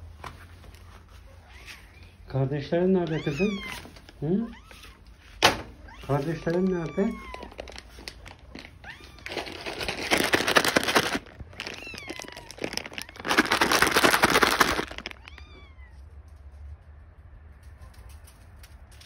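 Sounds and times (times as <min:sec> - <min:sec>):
cat meowing: 0:03.0 - 0:08.0, 0:08.7 - 0:09.9, 0:11.4 - 0:13.9, 0:14.8 - 0:16.1
loud rustling: 0:07.1 - 0:15.4.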